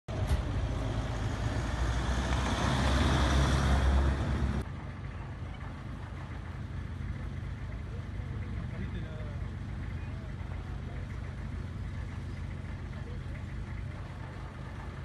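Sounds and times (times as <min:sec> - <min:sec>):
ambulance passing by: 0:00.1 - 0:08.9.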